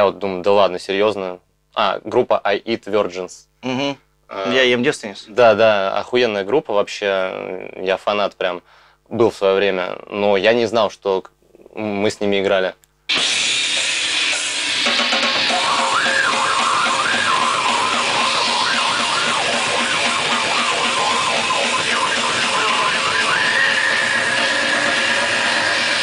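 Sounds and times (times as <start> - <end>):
grindcore music: 13.1 - 26.0
wavering high tone: 15.5 - 26.0.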